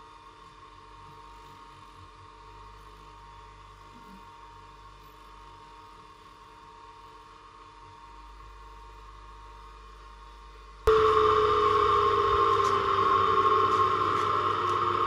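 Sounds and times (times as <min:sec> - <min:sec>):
bench grinder motor whining: 0:10.9 - 0:15.0.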